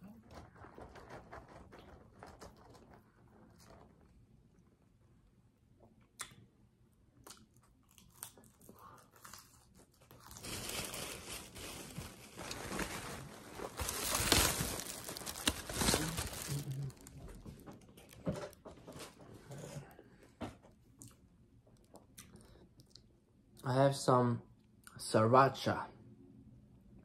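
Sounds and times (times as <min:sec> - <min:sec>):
plastic bag crinkling: 0:09.4 - 0:18.5.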